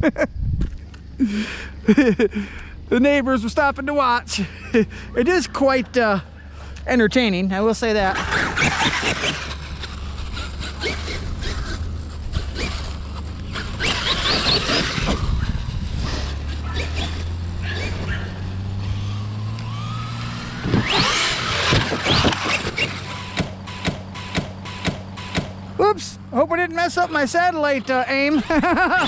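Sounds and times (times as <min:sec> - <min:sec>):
rc truck electric motor whining: 0:07.9 - 0:25.7, 0:26.8 - 0:29.0
sharp knocks: 0:23.3 - 0:25.6.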